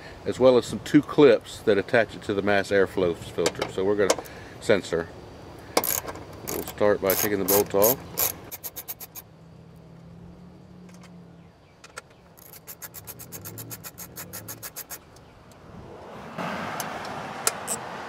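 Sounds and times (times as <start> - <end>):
ratchet wrench clicking: 5.8 - 9.3, 12.4 - 15.2.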